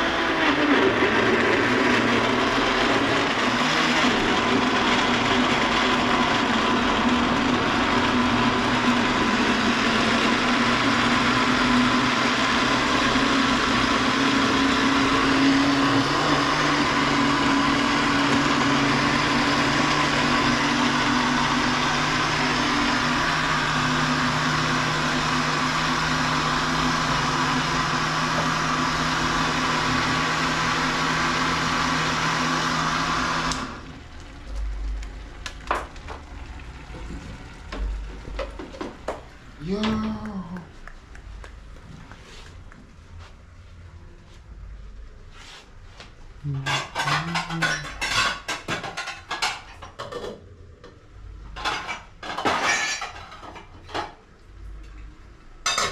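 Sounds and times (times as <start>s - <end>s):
electric blender whirring: 0.0s - 40.1s.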